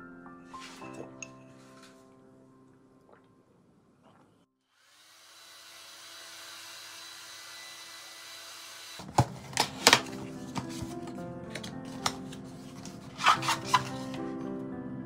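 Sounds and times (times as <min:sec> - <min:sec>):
soft music: 0:00.0 - 0:03.8, 0:09.2 - 0:15.0
hair dryer blowing: 0:04.8 - 0:09.1
cardboard box being opened: 0:09.0 - 0:14.2.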